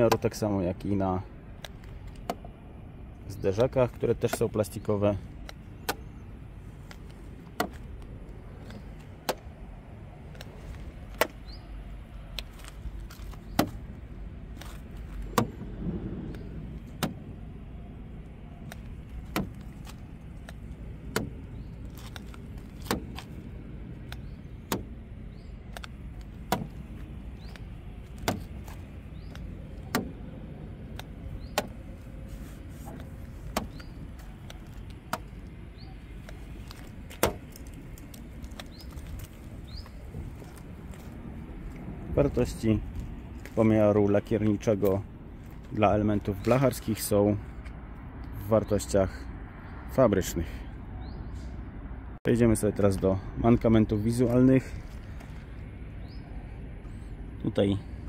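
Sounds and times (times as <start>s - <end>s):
steady low rumble: 0.0s - 50.0s, 50.7s - 58.0s.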